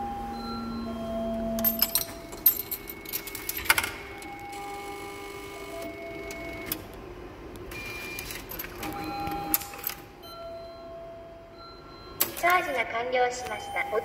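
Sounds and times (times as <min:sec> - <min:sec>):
machine mechanism whirring: 0:01.3 - 0:07.0
coin clattering into machine: 0:01.6 - 0:04.2.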